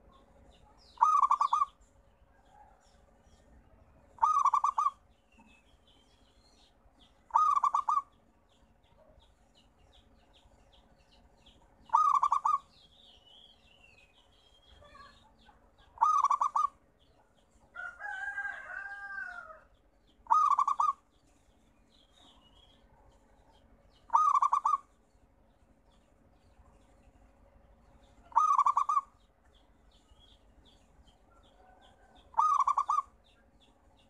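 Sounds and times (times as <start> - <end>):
faint small-bird chirps: 0.0 - 17.9, 20.0 - 25.2, 27.8 - 34.0
dove trilled coos: 0.9 - 1.8, 4.2 - 5.0, 7.3 - 8.1, 11.9 - 12.7, 15.8 - 16.8, 20.2 - 21.0, 24.1 - 24.9, 28.3 - 29.2, 31.6 - 33.2.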